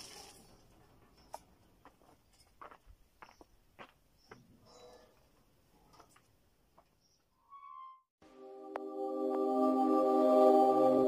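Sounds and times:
sustained chords: 8.2s - 11.0s.

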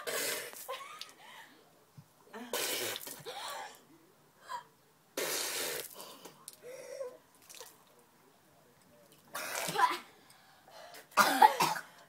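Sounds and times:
person coughing and gasping: 11.1s - 12.0s.

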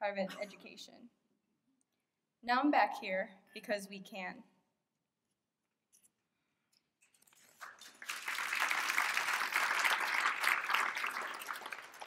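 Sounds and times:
audience applauding: 7.5s - 12.0s.

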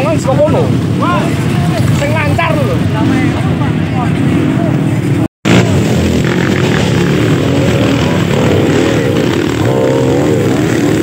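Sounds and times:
dirt bike engine revving: 4.1s - 11.0s.

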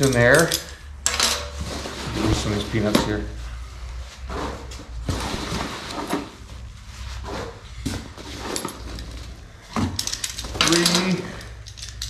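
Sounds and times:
foam packing peanuts rustling: 1.6s - 2.9s.

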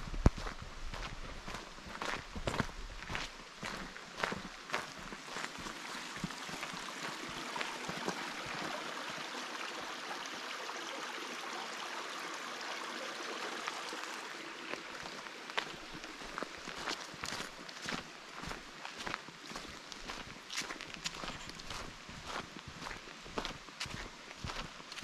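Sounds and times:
footsteps on gravel: 0.0s - 8.3s, 14.6s - 25.0s
brook running over rocks: 0.0s - 25.0s.

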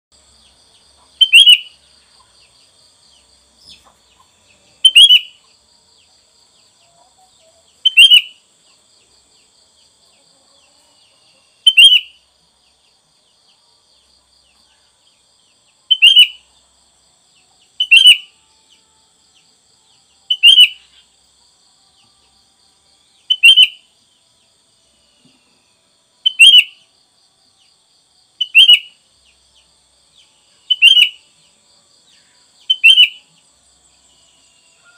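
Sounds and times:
bulbul calling: 1.0s - 1.7s, 3.7s - 5.4s, 7.8s - 8.4s, 11.6s - 12.2s, 15.9s - 16.4s, 17.8s - 18.3s, 20.3s - 21.0s, 23.2s - 23.8s, 26.2s - 26.8s, 28.4s - 29.0s, 30.6s - 31.2s, 32.6s - 33.2s.

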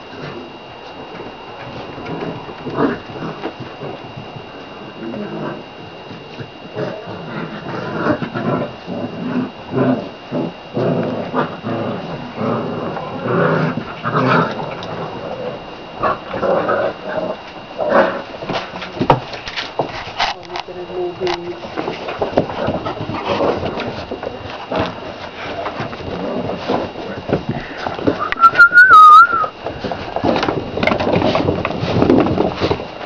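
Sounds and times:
puppies whining and crying: 28.1s - 29.6s.

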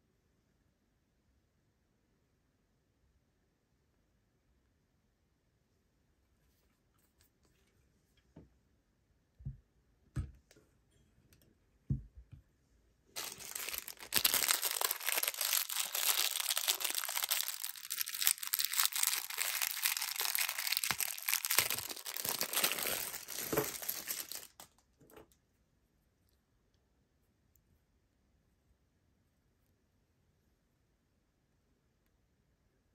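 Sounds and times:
plastic bag crinkling and tearing: 13.2s - 24.8s.

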